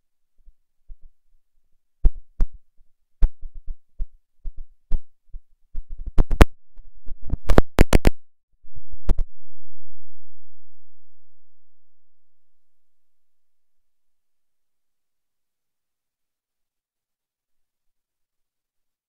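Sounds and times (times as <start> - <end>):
glitchy clicks and thumps: 5.8 - 9.4
low hum: 8.6 - 14.4.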